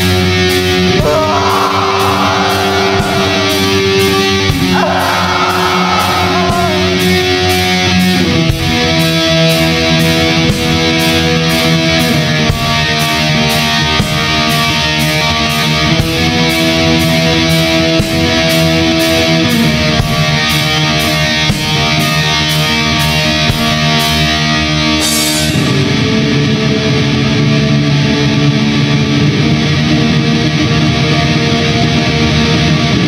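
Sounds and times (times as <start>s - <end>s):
distorted electric guitar chords: 0.0s - 33.0s
drums: 0.0s - 33.0s
sharp high hits: 1.0s - 7.6s.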